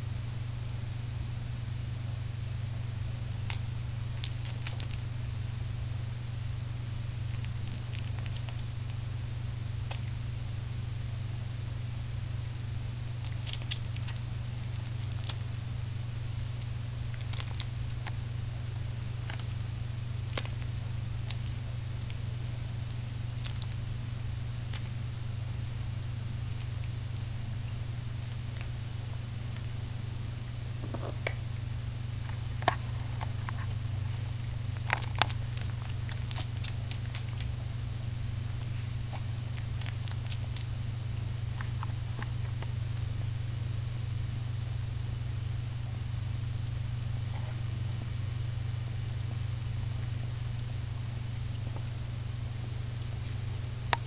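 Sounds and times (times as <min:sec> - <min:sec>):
steady low hum: 0:00.0 - 0:54.0
puppy suckling smacking clicks: 0:04.2 - 0:05.0, 0:07.3 - 0:08.7, 0:09.9 - 0:10.2, 0:13.2 - 0:14.2, 0:20.3 - 0:22.2, 0:23.4 - 0:23.8, 0:34.4 - 0:37.6.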